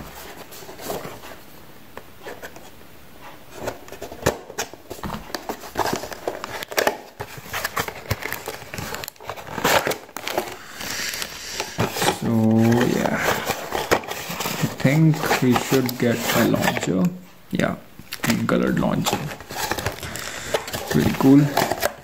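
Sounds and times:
cardboard box being opened: 3.6s - 16.9s, 19.0s - 22.0s
plastic bag crinkling: 4.9s - 16.9s, 18.1s - 22.0s.

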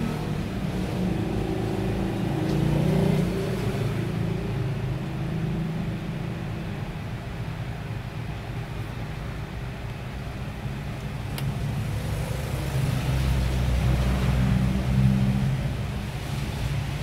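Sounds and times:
passing vehicle engine hum: 0.0s - 7.0s, 11.4s - 17.0s.

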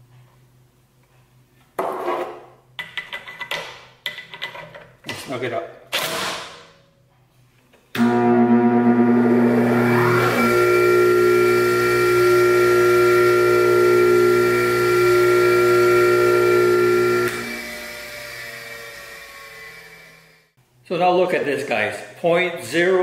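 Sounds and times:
bench grinder motor whine: 8.0s - 20.5s.

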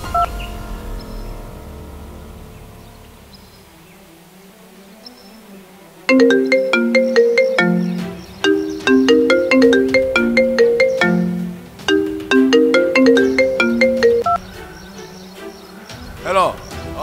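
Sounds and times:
smartphone ringtone melody: 6.1s - 14.4s.

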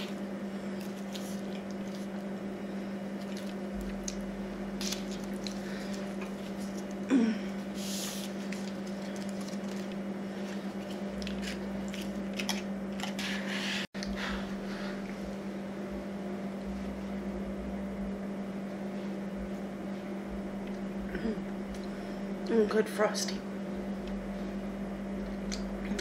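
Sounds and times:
low hum: 0.0s - 26.0s
paper wrapper rustling: 8.1s - 13.2s.

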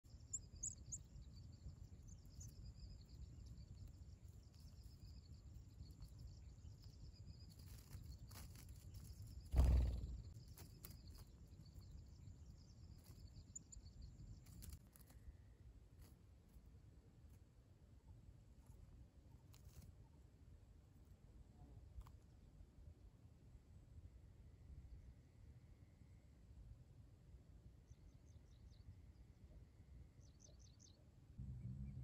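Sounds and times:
faint high drone: 31.3s - 32.0s
steady low rumble: 31.4s - 32.0s.

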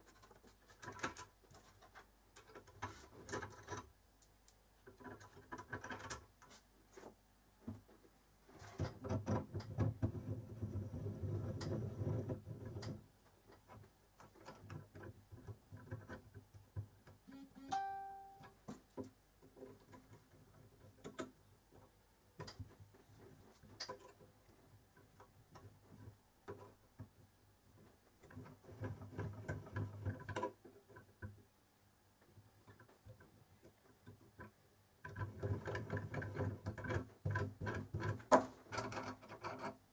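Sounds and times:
guitar music: 17.3s - 18.5s.

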